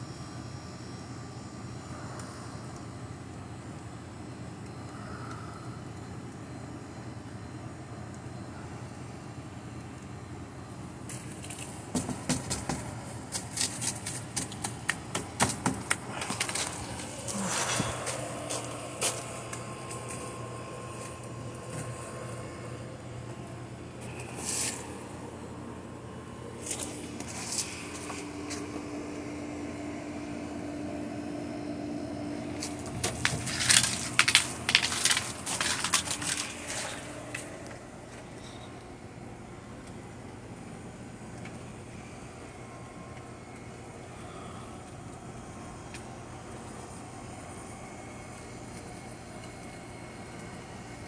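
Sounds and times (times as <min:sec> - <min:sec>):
steady low hum: 0:00.0 - 0:51.0
footsteps crunching on gravel: 0:11.1 - 0:22.4, 0:26.6 - 0:28.7, 0:32.5 - 0:37.7
cardboard burning and crackling: 0:32.5 - 0:37.6.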